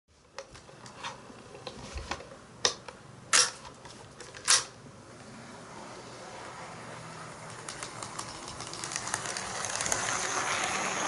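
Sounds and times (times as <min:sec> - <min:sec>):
sharp mechanical clicks: 0:07.5 - 0:10.4.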